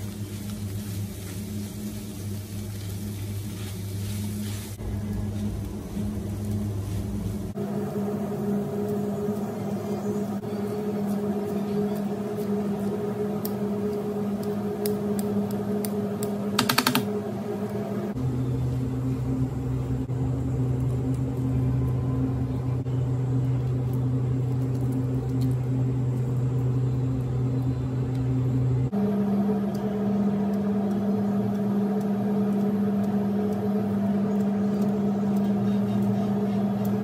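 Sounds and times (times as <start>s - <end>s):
mechanical motor hum: 0.0s - 37.0s.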